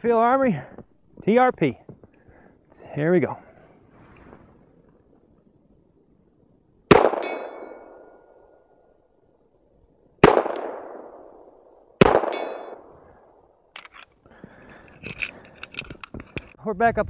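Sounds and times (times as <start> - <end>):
pistol shots: 6.9 - 8.4, 10.2 - 13.4
steel target ringing: 6.9 - 8.5, 12.0 - 13.1.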